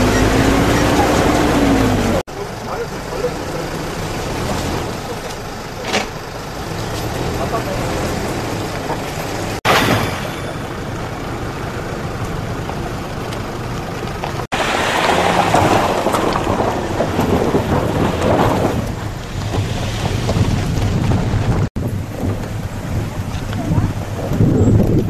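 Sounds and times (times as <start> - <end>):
vehicles driving on gravel: 0.0 - 25.0
wind rumbling on microphone: 14.1 - 25.0.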